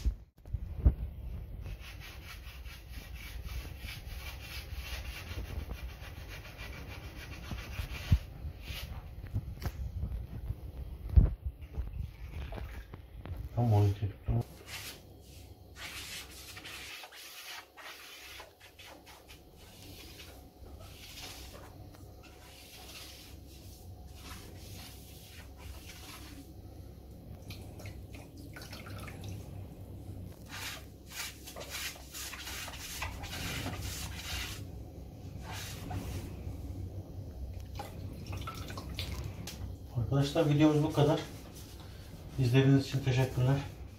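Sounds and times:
sponge wiping ceramic tiles: 1.6 - 9.1, 14.4 - 26.5, 30.3 - 34.7, 35.3 - 36.4, 40.3 - 43.9.

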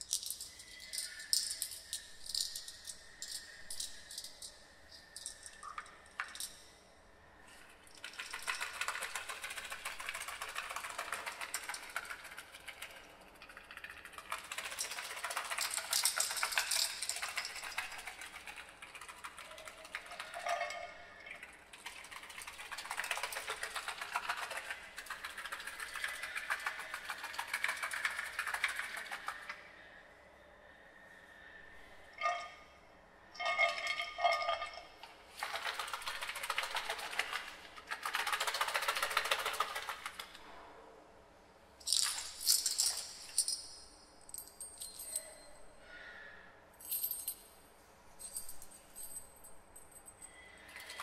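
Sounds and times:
shaken rattling and clinking: 0.0 - 6.6, 7.9 - 29.6, 35.3 - 40.4, 41.8 - 45.4.

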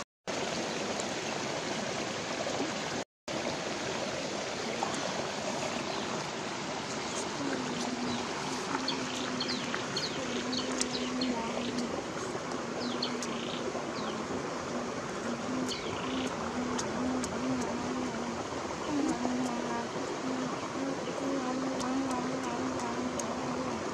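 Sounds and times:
stream flowing: 0.0 - 23.9
small birds chirping: 6.9 - 14.3, 15.2 - 23.2.

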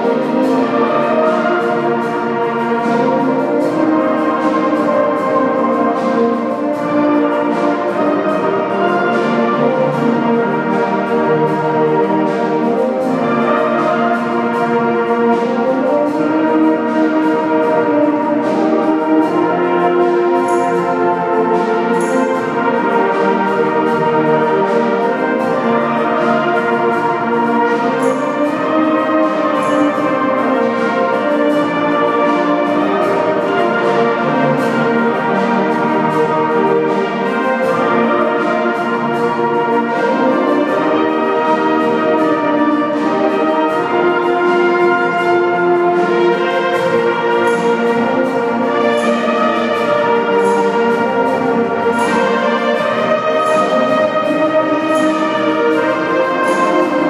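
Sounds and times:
wind band playing: 0.0 - 57.0.

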